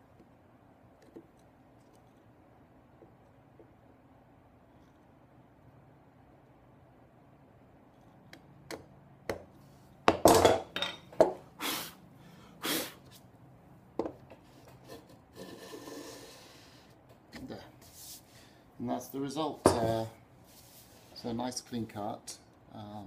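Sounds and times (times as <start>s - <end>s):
chisel scraping wood: 14.7s - 16.6s.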